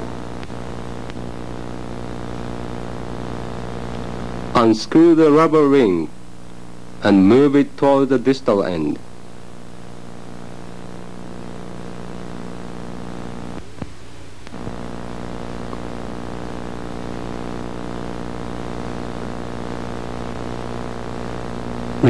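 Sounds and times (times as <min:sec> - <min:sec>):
low electrical mains hum: 0:00.0 - 0:22.0
clicks: 0:00.4 - 0:01.2.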